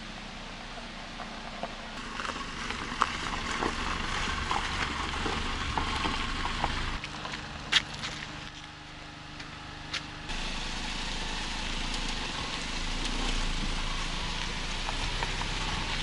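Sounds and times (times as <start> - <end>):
tyres hissing on wet road: 0.0 - 7.0, 10.3 - 16.0
low engine rumble: 0.0 - 16.0.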